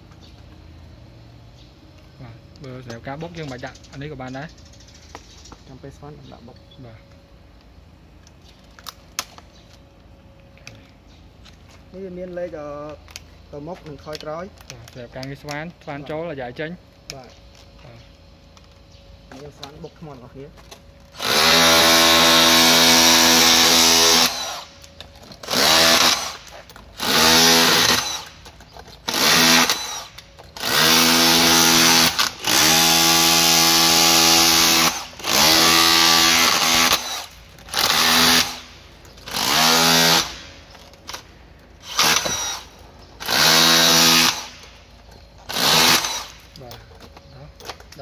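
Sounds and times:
rotary hammer chiselling concrete: 25.4s - 28.3s.

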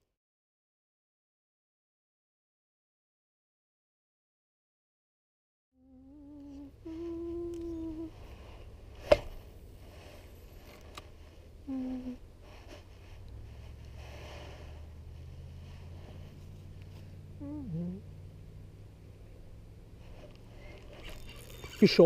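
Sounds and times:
person humming: 5.8s - 8.3s, 11.6s - 12.2s, 17.4s - 18.2s
low steady rumble: 5.8s - 22.0s.

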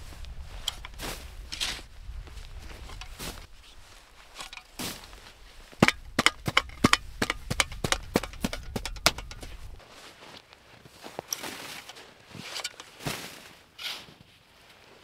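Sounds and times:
sharp hard knocks: 5.8s - 9.8s.

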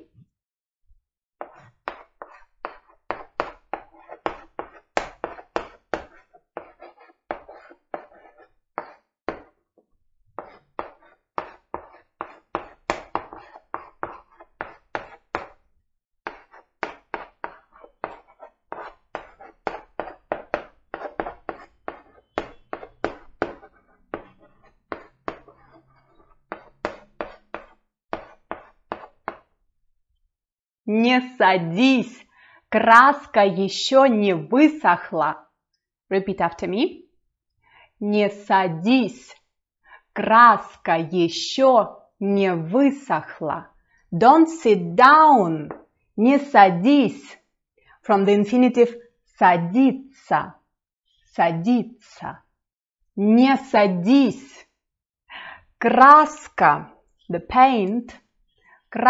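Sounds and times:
chalk writing on blackboard: 1.4s - 9.6s, 10.4s - 29.5s.

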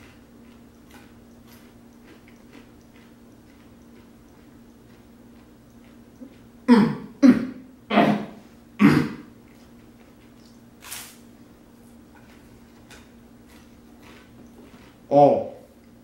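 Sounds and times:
man coughing: 6.7s - 9.3s.

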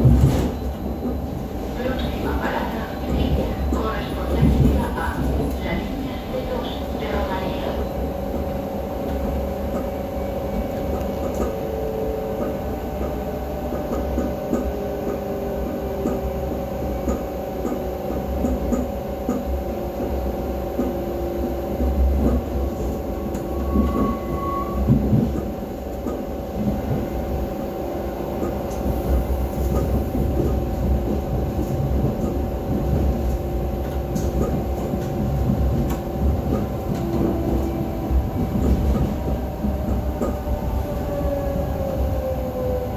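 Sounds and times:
constant hum: 0.0s - 23.8s
train wheels rumbling on track: 0.0s - 42.9s.

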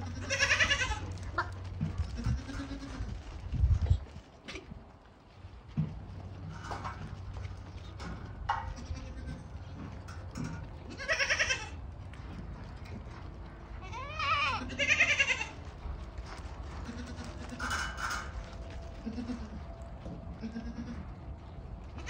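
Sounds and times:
goats bleating: 0.0s - 3.1s, 8.6s - 9.6s, 10.9s - 11.8s, 13.8s - 15.6s, 16.7s - 18.1s, 19.0s - 19.7s, 20.4s - 21.1s.

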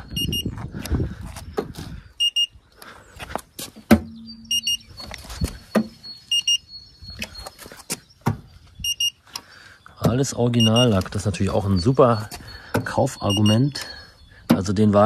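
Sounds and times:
gauge double beep: 0.0s - 0.5s, 2.2s - 2.6s, 4.1s - 5.1s, 6.0s - 7.4s, 8.8s - 9.2s, 10.0s - 15.0s.

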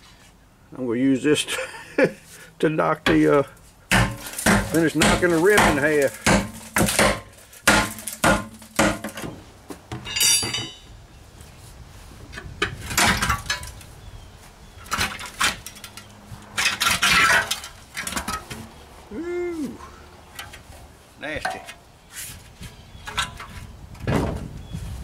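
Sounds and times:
scraping and crunching rust: 2.1s - 11.6s, 12.3s - 19.1s, 20.2s - 25.0s
pry tool clanking on metal rim: 10.0s - 10.8s.

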